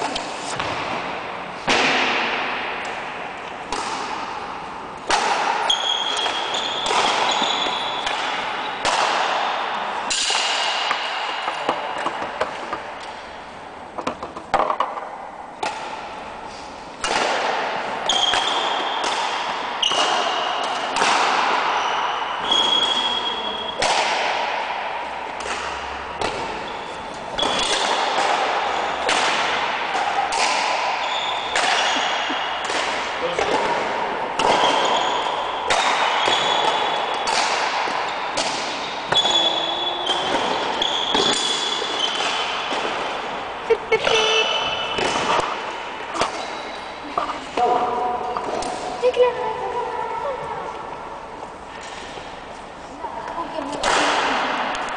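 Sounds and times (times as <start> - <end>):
rackets hitting shuttlecock: 0.0 - 49.3, 53.2 - 54.9
sneakers squeaking on floor: 5.6 - 8.9, 18.0 - 19.1, 19.8 - 21.0, 21.6 - 23.8, 25.7 - 29.0, 30.9 - 32.7, 34.4 - 42.9, 44.0 - 45.5, 46.2 - 47.4.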